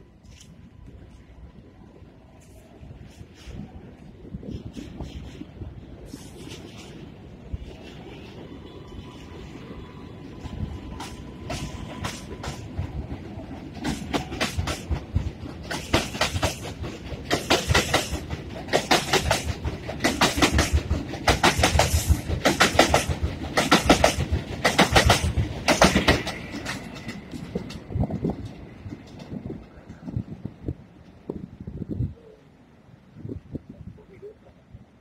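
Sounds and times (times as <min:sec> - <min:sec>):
train wheels clacking over rail joints: 0:10.4 - 0:30.3.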